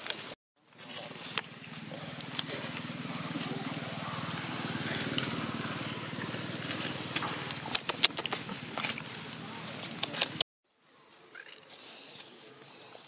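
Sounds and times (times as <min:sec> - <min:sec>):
small engine humming: 0:00.8 - 0:10.4.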